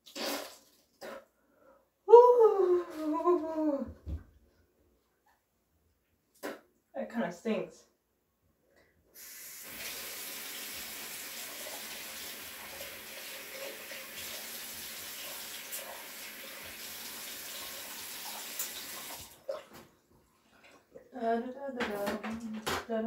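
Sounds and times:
faucet water running into sink: 9.2 - 19.5.

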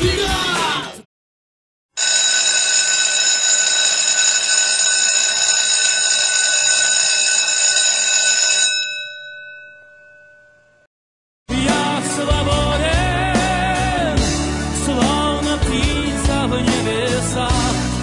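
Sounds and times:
electric bell ringing: 2.0 - 10.9.

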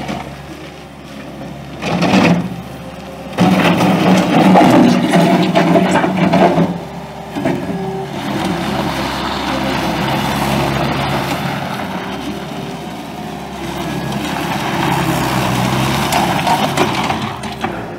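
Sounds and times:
diesel engine running: 0.0 - 17.9.

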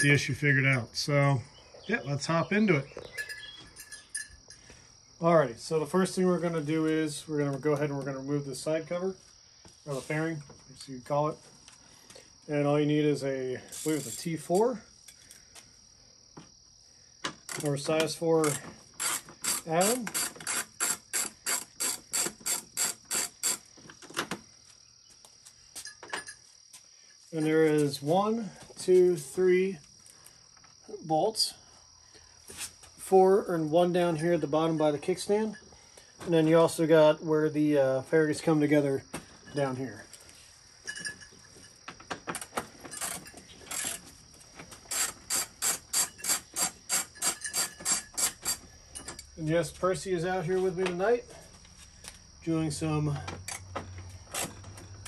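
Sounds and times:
hand ratchet clicking: 13.7 - 14.2, 17.5 - 23.7, 42.4 - 44.0, 44.8 - 49.3, 53.5 - 54.8.

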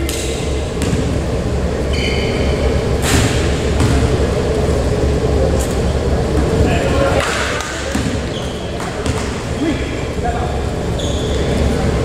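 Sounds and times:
high squeak: 1.9 - 2.7, 10.9 - 11.6.

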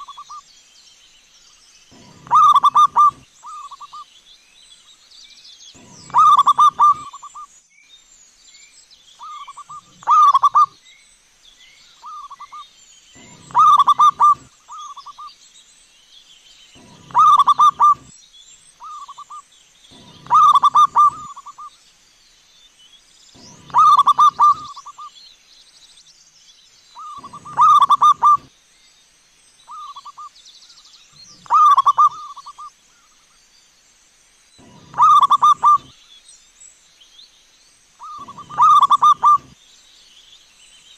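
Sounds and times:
dove cooing: 0.0 - 0.4, 1.9 - 4.0, 5.8 - 7.4, 9.2 - 10.8, 13.2 - 15.2, 16.8 - 18.1, 19.9 - 21.7, 23.4 - 25.1, 27.0 - 28.5, 31.4 - 32.7, 34.6 - 35.9, 38.0 - 39.6
small birds chirping faintly: 0.0 - 40.9.

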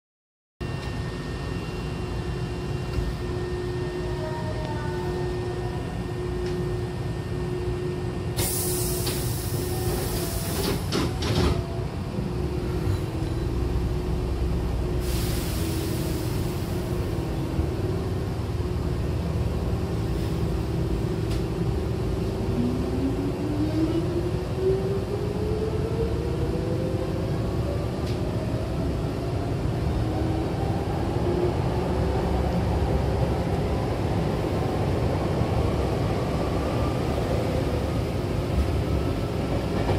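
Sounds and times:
train humming: 0.6 - 39.9
train doors hissing shut: 8.4 - 11.6, 15.0 - 16.8.

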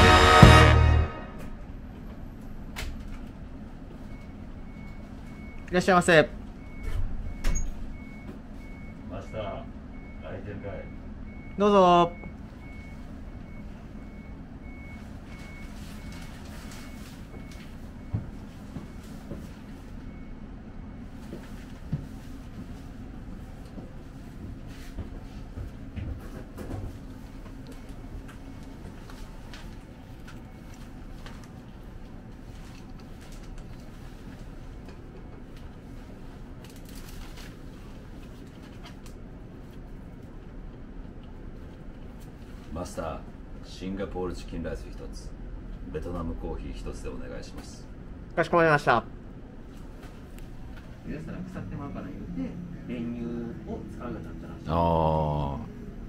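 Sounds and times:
low room hum: 0.0 - 56.0
reversing alarm beeping: 4.0 - 21.0
paper menu pages rustling: 28.3 - 34.8, 35.5 - 40.2
low engine rumble: 49.0 - 56.0.

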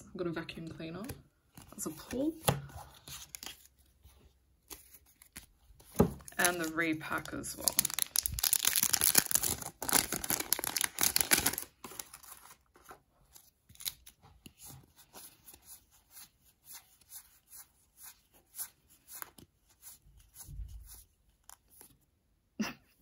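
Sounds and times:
cards and wrappers rustling: 0.8 - 22.0
plastic packaging crumpling: 6.2 - 12.7.

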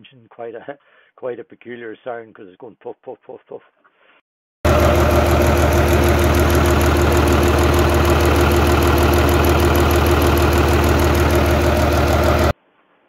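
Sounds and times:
diesel engine running: 4.7 - 12.5
rhythmic exhauster puffing: 4.7 - 12.5.

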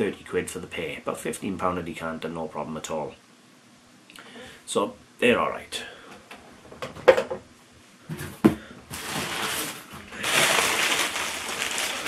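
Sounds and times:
paper wrapping rustling: 8.9 - 12.0.

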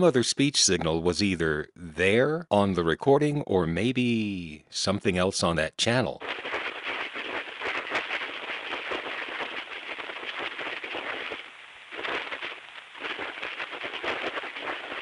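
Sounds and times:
shortwave radio static: 5.8 - 15.0.

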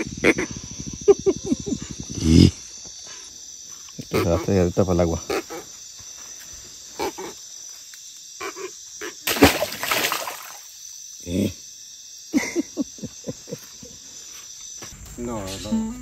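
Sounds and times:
insects and crickets chirping: 0.0 - 16.0
loud splash in river water: 9.3 - 10.6.

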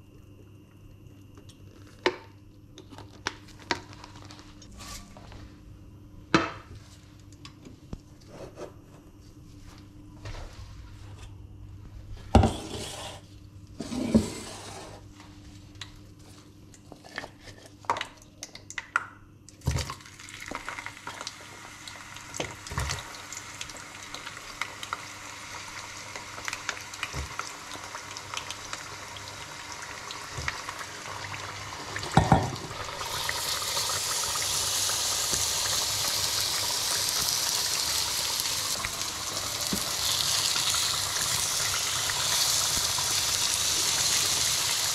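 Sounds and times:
potatoes frying in oil: 19.6 - 44.9
chicken sizzling in frying pan: 20.0 - 44.9.

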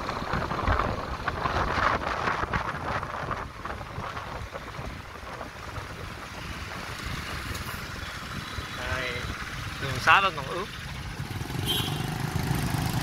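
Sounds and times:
wind on microphone: 0.0 - 9.6
traffic on wet road: 0.0 - 13.0.

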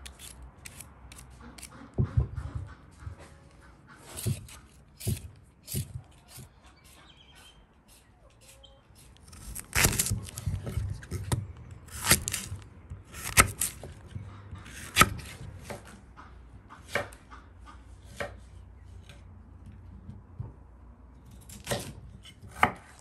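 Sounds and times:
knife cutting potatoes on board: 0.0 - 3.3, 4.0 - 16.0, 16.8 - 17.2, 18.0 - 18.5, 21.4 - 23.0.

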